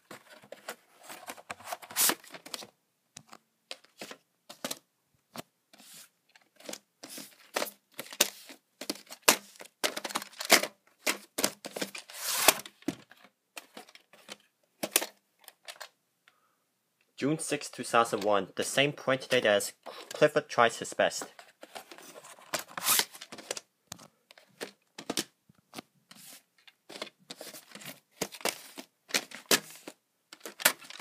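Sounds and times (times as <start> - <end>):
cardboard scraping and rustling: 0.0 - 2.6, 5.8 - 14.4, 21.2 - 23.6, 26.1 - 31.0
plastic cassettes clacking: 0.0 - 5.5, 6.2 - 16.0, 18.0 - 18.4, 19.1 - 31.0.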